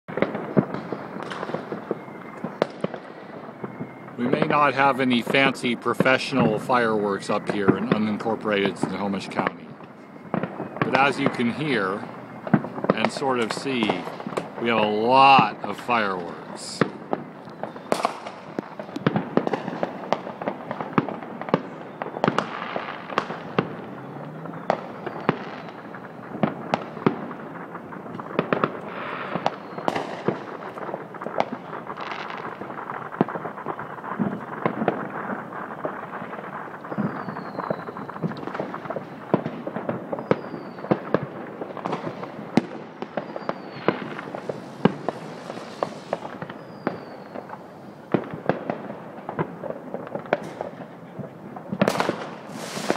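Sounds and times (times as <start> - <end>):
fireworks and firecrackers banging: 0.1 - 52.9.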